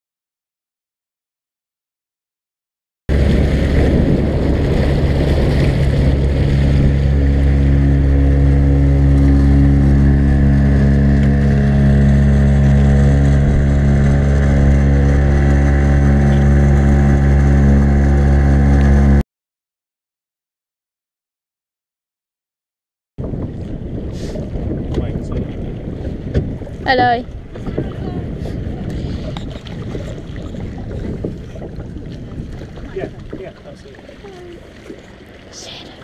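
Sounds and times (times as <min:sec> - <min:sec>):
outboard motor humming: 0:03.1 - 0:19.2, 0:23.2 - 0:36.0
rough rushing noise: 0:03.1 - 0:19.2.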